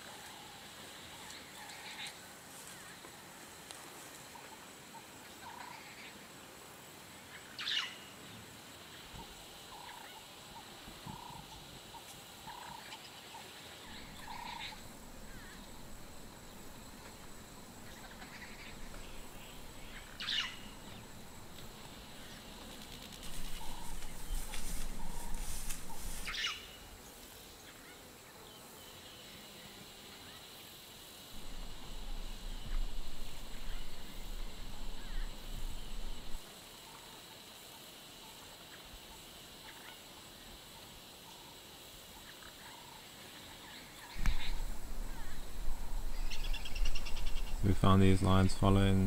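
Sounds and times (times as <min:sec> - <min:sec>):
sharp loud animal calls: 0:13.9 - 0:22.6, 0:44.2 - 0:47.8
faint steady background: 0:42.2 - 0:49.0.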